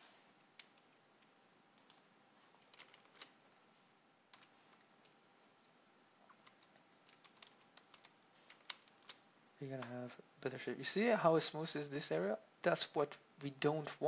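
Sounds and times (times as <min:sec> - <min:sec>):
computer mouse and keyboard clicks: 0:06.3 - 0:09.2.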